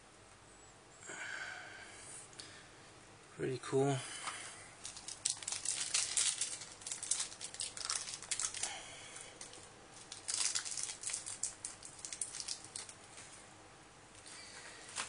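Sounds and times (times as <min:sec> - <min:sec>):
cellophane wrapper crinkling: 0:04.8 - 0:13.3.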